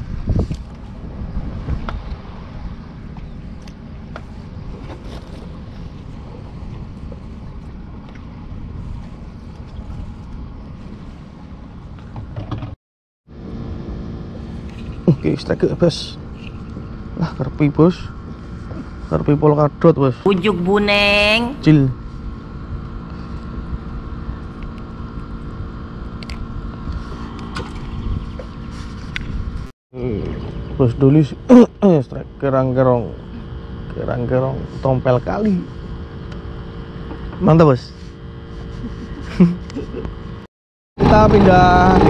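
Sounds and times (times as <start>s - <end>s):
wind buffeting microphone: 0.0s - 12.4s, 22.2s - 30.8s
small boat engine running: 0.0s - 42.0s.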